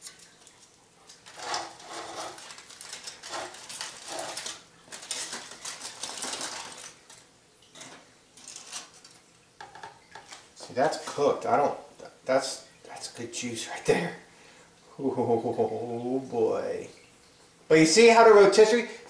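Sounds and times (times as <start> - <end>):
aluminum foil crinkling: 0.0 - 9.4, 10.0 - 11.2
utensils clinking on a plate: 1.1 - 10.4.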